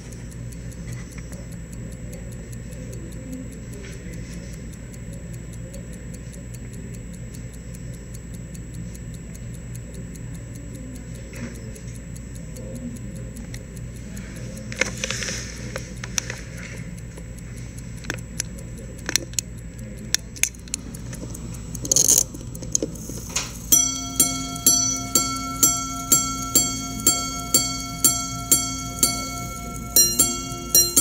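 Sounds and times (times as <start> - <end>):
watch ticking: 0.0 - 31.0
hammers striking watch gongs: 23.6 - 31.0.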